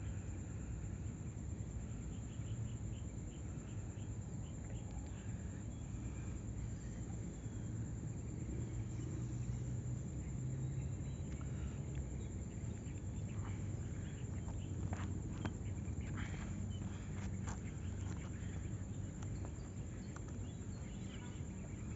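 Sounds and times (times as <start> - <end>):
low outdoor rumble: 0.0 - 21.9
scuffs and rustles on asphalt: 11.2 - 21.9.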